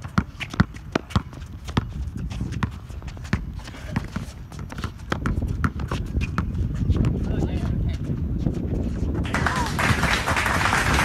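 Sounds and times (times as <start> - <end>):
basketball bouncing on hard court: 0.0 - 8.5
players' footsteps: 0.0 - 11.0.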